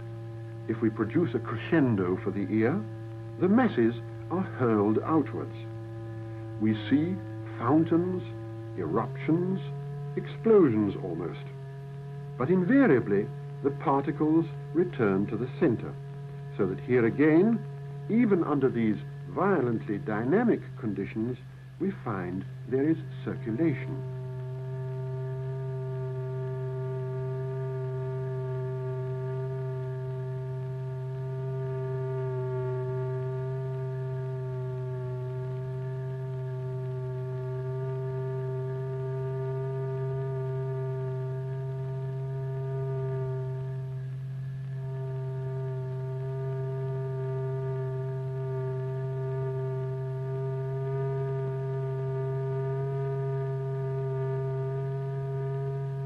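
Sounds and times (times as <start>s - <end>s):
low buzzy electronic test tone: 0.0s - 56.0s
low hum: 0.0s - 56.0s.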